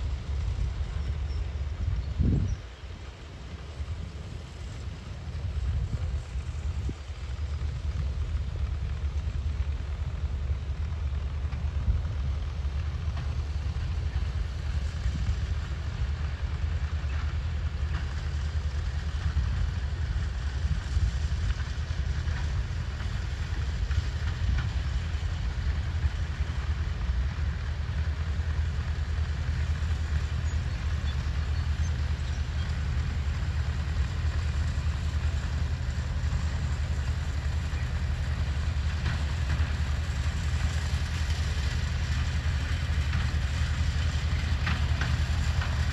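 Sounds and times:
mower noise: 0:00.0 - 0:45.9
tractor engine rumbling: 0:00.0 - 0:45.9.

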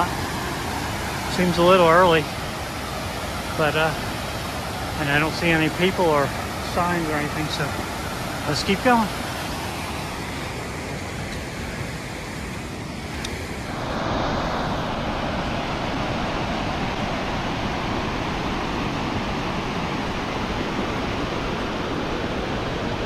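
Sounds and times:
waterfall and creek over rocks: 0:00.0 - 0:23.0.

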